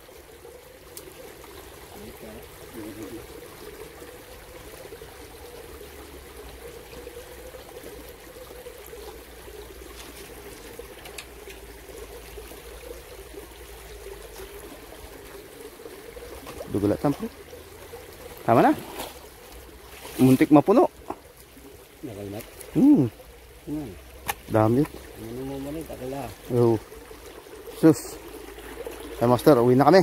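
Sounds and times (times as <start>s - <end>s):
creek water trickling over stones: 0.0s - 30.0s.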